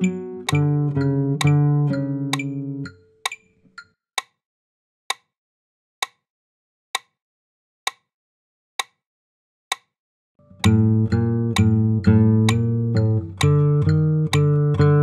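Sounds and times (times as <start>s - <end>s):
classical guitar notes: 0.0s - 3.0s, 10.4s - 15.0s
metronome clicking: 0.0s - 4.4s, 9.7s - 15.0s.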